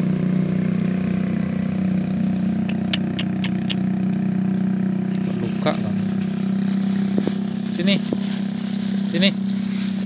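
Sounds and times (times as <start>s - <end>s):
motorbike engine idling: 0.0s - 10.0s
sharp clicks: 2.6s - 3.8s.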